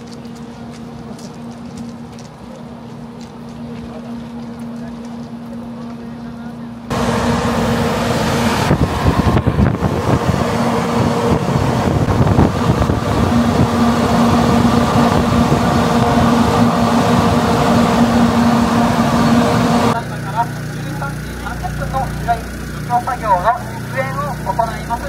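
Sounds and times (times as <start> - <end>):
fan hum: 0.0 - 25.0
air blast buffeting microphone: 6.9 - 20.0.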